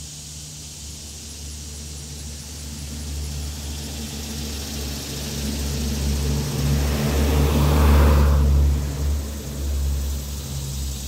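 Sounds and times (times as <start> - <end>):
cicadas buzzing: 0.0 - 11.0
car driving past: 2.6 - 11.0.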